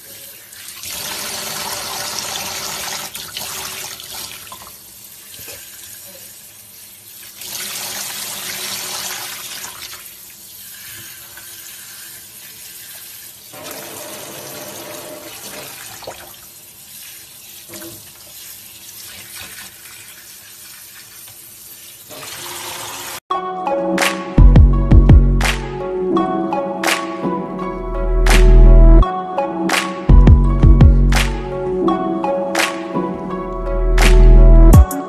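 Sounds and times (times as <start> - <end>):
water running from bathtub spout: 0.0 - 23.2.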